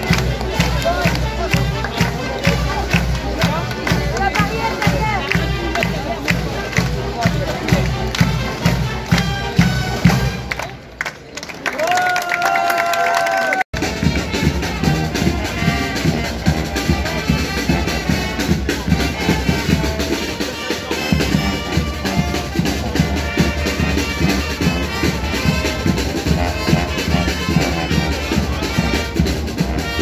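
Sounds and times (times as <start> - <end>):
brass and drums music: 0.0 - 11.0, 13.7 - 30.0.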